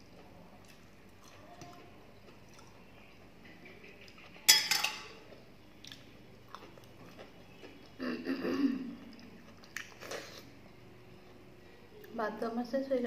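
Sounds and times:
wet eating sound: 0.1 - 3.2, 5.2 - 8.0, 8.8 - 10.6
steel bowl clinking on plate: 4.5 - 5.2.

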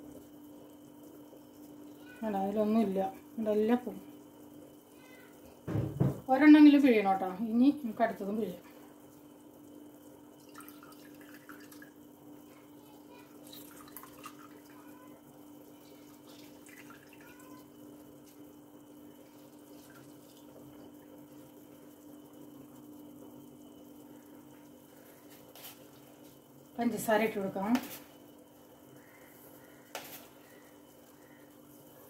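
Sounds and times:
juice trickling into a jug: 8.1 - 31.9.

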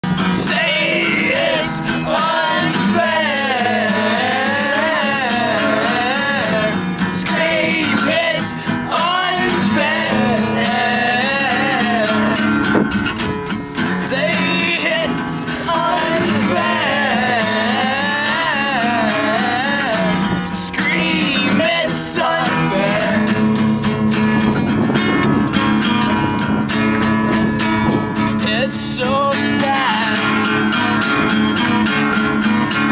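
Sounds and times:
acoustic guitar strummed: 0.0 - 32.9
person singing: 0.4 - 12.7, 14.0 - 23.5.

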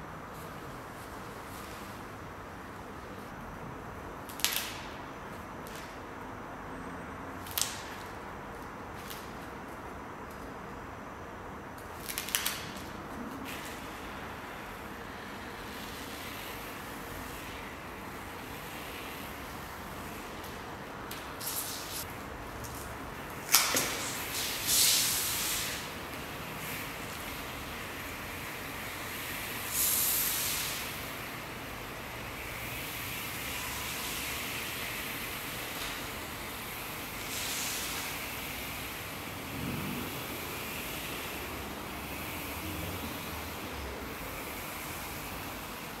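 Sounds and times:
steady background noise: 0.0 - 46.0.

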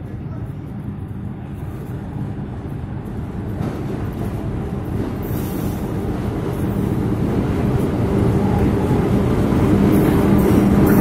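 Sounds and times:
diesel locomotive engine rumble: 0.0 - 11.0.

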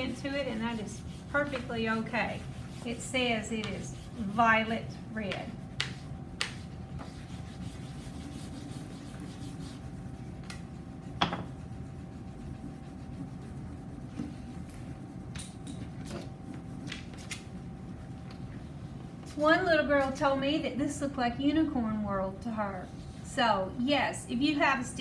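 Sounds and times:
wax crayon rubbing on paper: 0.0 - 15.3.

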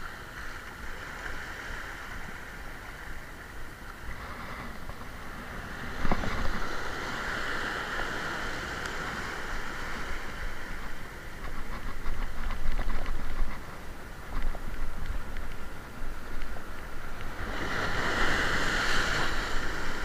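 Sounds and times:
surf washing over rocks: 0.0 - 20.0
wave splashing against rocks: 4.7 - 20.0.

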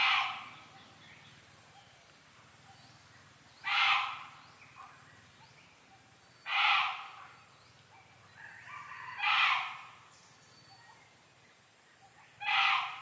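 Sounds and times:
loud animal calls: 0.0 - 0.6, 3.6 - 4.4, 6.5 - 7.2, 9.1 - 10.0, 12.4 - 13.0.

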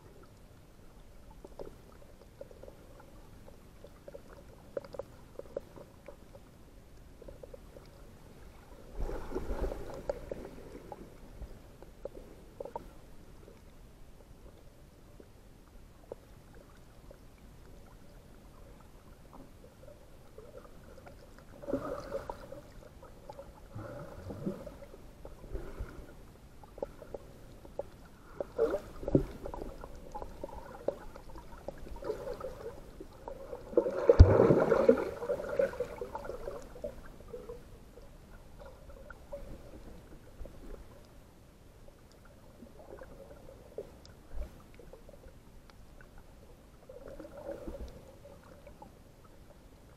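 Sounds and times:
muffled water sloshing: 0.0 - 49.9.

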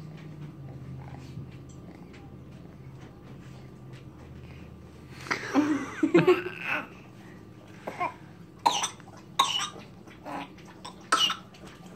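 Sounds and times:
baby coughing: 7.9 - 11.5.

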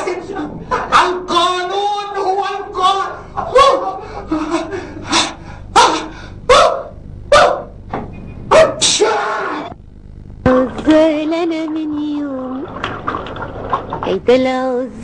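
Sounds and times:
man and woman arguing: 0.0 - 4.1, 5.2 - 7.7.

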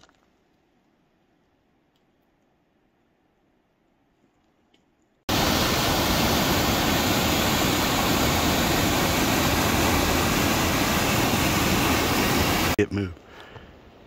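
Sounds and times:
waterfall rushing: 5.3 - 12.8.

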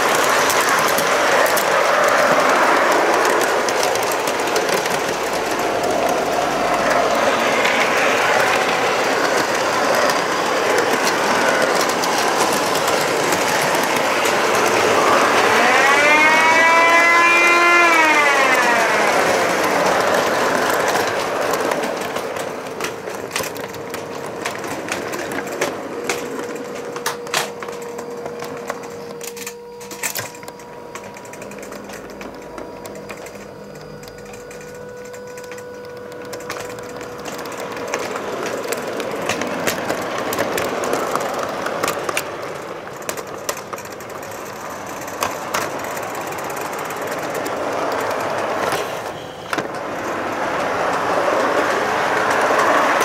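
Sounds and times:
model train rattling on track: 0.0 - 53.0
faint steady whine: 17.2 - 53.0.

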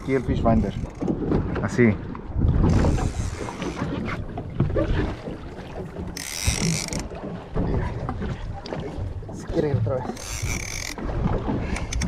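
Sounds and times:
water noise: 0.0 - 12.0
wind: 0.0 - 12.0
fishing reel clicking: 6.2 - 7.0, 10.2 - 11.0.

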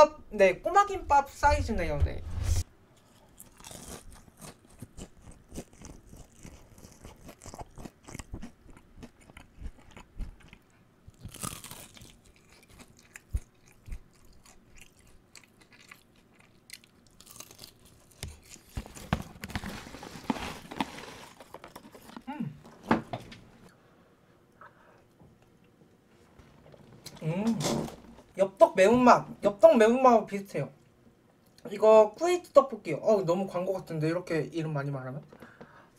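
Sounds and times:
chewing: 3.0 - 18.8
crunchy bites: 3.0 - 22.4.

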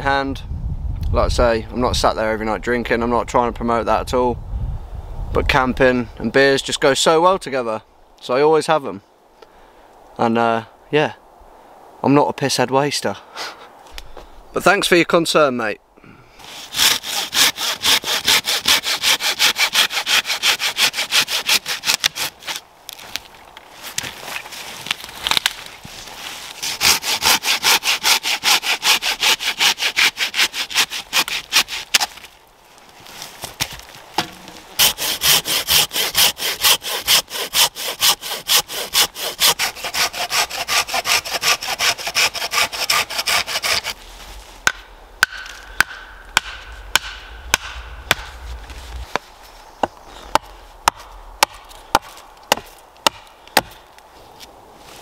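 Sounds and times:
hand saw cutting branch: 16.4 - 22.6, 26.2 - 32.3, 34.2 - 48.4
hatchet splitting wood: 16.6 - 22.6, 26.6 - 32.2, 33.7 - 44.0, 44.6 - 48.4, 49.8 - 53.8.

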